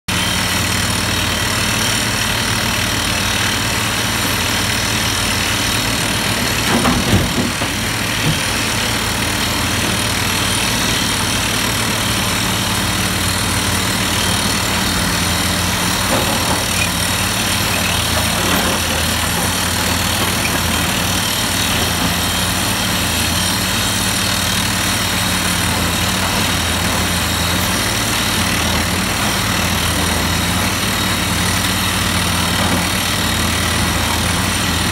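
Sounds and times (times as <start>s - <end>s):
excavator diesel engine running: 0.1s - 34.9s.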